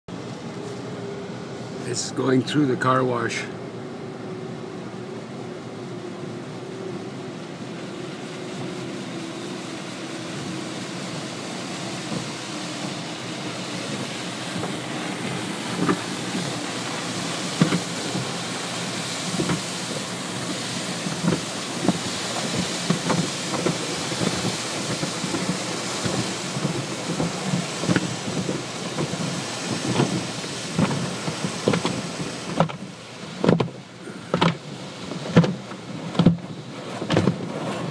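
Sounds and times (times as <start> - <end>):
water jets spraying on car: 0.1 - 37.9
car wash brushes thumping: 12.0 - 37.9.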